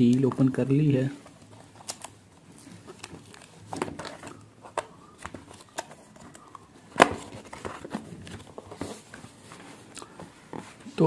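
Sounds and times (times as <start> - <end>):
cardboard box scraping and rustling: 7.2 - 11.0.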